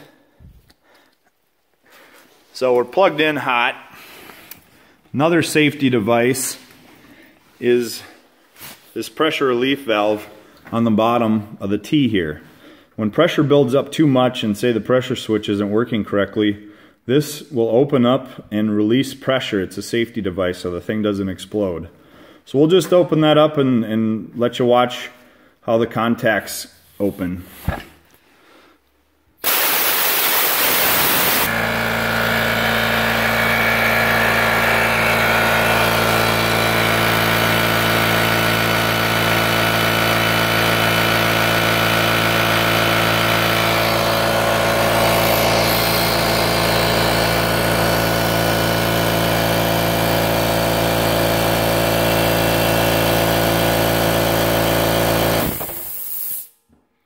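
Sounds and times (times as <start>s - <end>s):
compressed air hissing: 29.4s - 31.5s, 44.6s - 46.9s, 55.6s - 56.6s
air compressor running: 29.4s - 56.6s
short air release psst: 55.7s - 56.6s.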